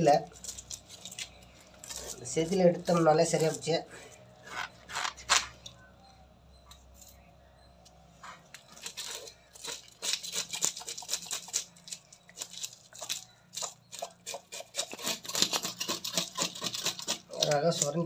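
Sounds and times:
knife scraping fish scales: 2.9 - 5.6, 8.3 - 18.0.

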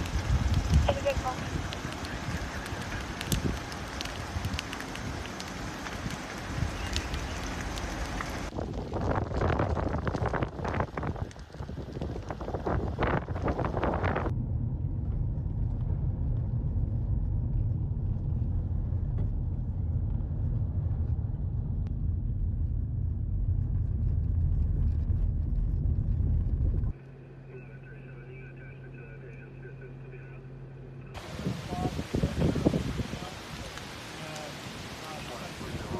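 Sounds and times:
car driving rumble from inside: 12.8 - 28.0
quiet steady hum: 14.3 - 31.2.

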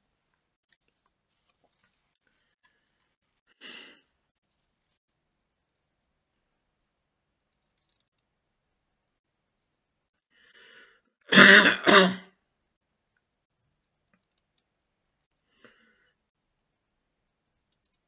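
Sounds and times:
man coughing: 11.3 - 12.3.

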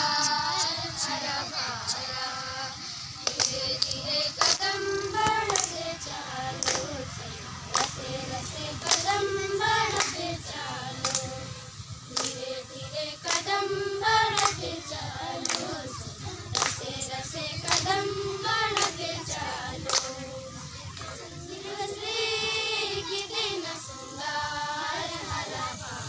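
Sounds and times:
girls singing together: 0.0 - 26.0
handclaps keeping beat: 3.1 - 22.1.

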